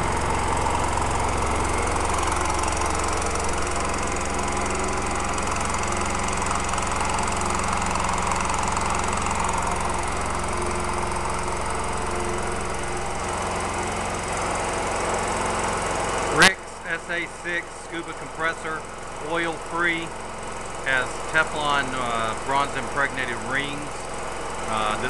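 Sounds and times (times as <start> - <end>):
air compressor running: 0.0 - 25.0.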